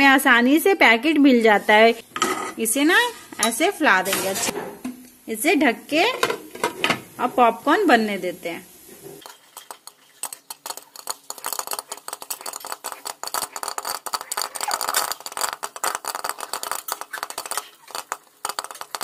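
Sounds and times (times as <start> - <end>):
popcorn popping in pan: 5.7 - 19.0.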